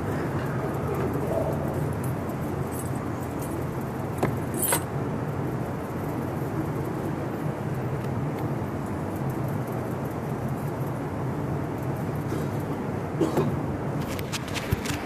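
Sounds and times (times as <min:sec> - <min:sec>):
steady low hum: 0:00.0 - 0:15.0
jangling rustle: 0:00.3 - 0:04.9.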